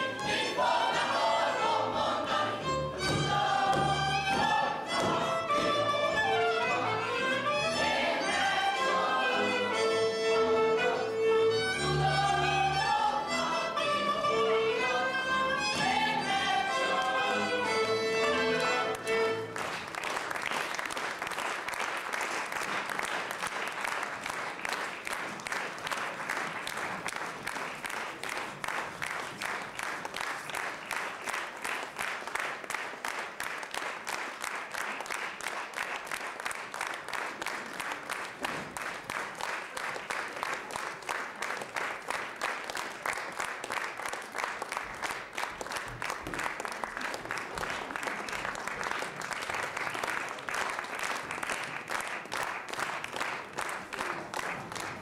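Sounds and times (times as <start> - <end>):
audience applauding rhythmically: 0.0 - 13.9, 15.4 - 55.0.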